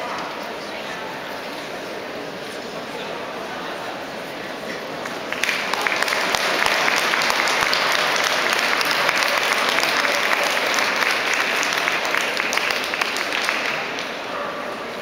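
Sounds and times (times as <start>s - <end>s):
audience applause: 5.1s - 14.3s.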